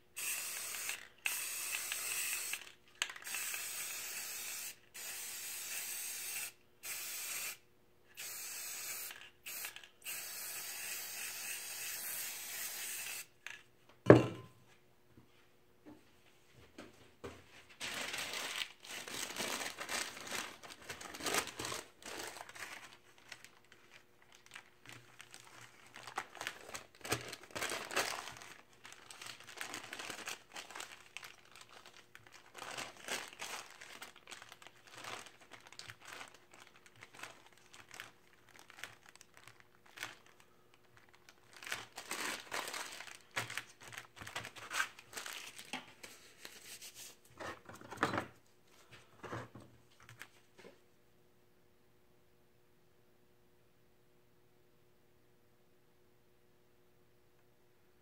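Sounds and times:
paper crinkling: 0:17.7 - 0:47.2.

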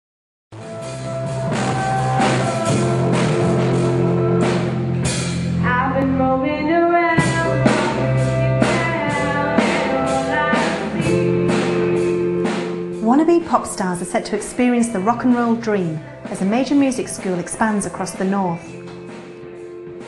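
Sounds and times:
band with drums and guitar: 0:00.6 - 0:05.7, 0:07.2 - 0:20.0
girl singing rock song: 0:05.6 - 0:19.1.

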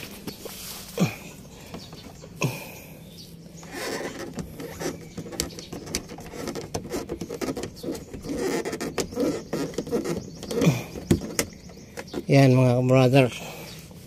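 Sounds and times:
plastic fasteners clicking: 0:03.6 - 0:12.3.

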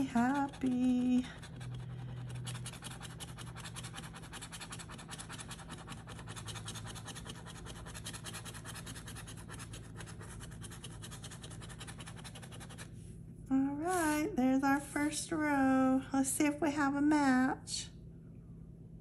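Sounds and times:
coin scratching lottery ticket: 0:00.0 - 0:12.9
steady low hum: 0:00.0 - 0:19.0.

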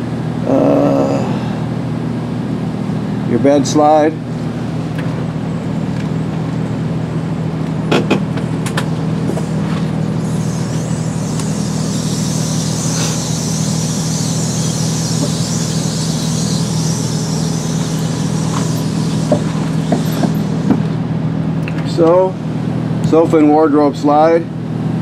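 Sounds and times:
hydraulic pump hum: 0:04.2 - 0:23.1
high-pitched hiss: 0:09.1 - 0:21.0.

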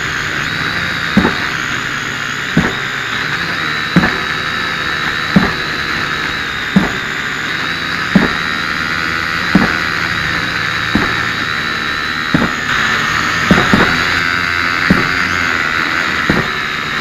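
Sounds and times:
drone propellers whining: 0:00.0 - 0:17.0
pile driver hammer striking steel: 0:01.2 - 0:01.6, 0:02.5 - 0:02.9, 0:04.0 - 0:05.8, 0:06.7 - 0:07.0, 0:08.1 - 0:08.5, 0:09.5 - 0:09.9, 0:10.8 - 0:11.4, 0:12.3 - 0:12.7, 0:13.4 - 0:14.2, 0:14.9 - 0:15.4, 0:16.3 - 0:16.6.

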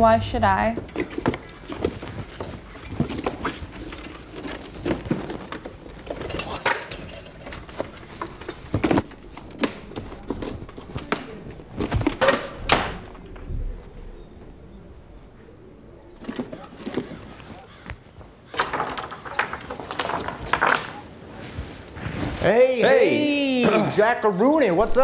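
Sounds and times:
guitar moved in its case: 0:01.0 - 0:17.6.

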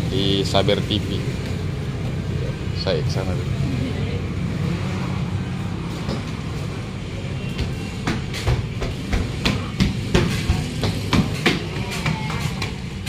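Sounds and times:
sharp knocks and clatters: 0:07.5 - 0:13.0.

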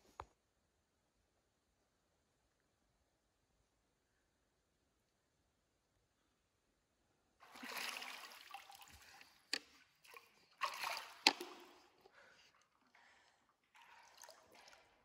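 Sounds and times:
sharp water smacks: 0:07.4 - 0:12.1
water splashing and sloshing: 0:07.4 - 0:15.0.

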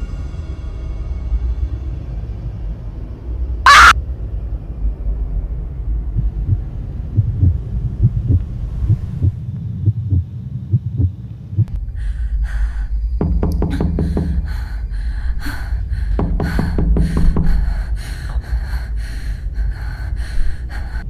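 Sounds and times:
dark low drone: 0:00.0 - 0:21.0
loud screech: 0:03.7 - 0:04.0
soft low thuds: 0:06.0 - 0:11.8.

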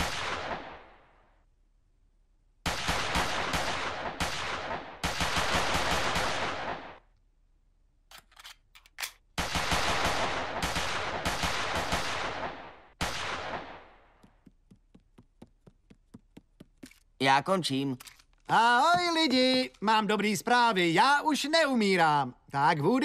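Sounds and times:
automatic gunfire: 0:02.7 - 0:07.0, 0:09.4 - 0:13.9.

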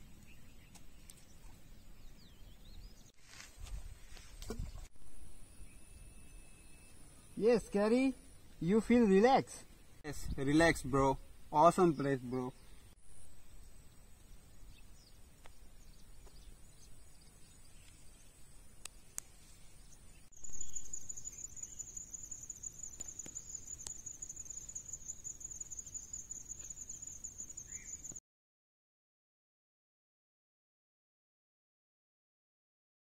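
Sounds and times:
faint high insect whine: 0:05.0 - 0:09.8, 0:13.0 - 0:28.2
pulsing high insect trill: 0:20.4 - 0:28.2.

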